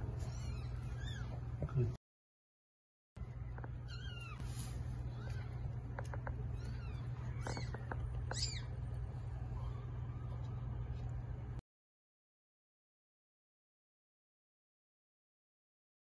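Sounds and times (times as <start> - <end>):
low hum: 3.2 - 11.6
kittens mewing: 3.8 - 10.8.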